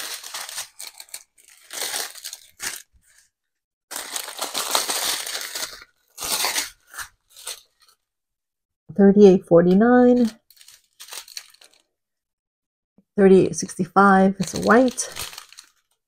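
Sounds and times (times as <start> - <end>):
plastic bags crinkling: 0.0 - 3.3, 3.9 - 8.0, 10.2 - 11.9, 14.4 - 16.0.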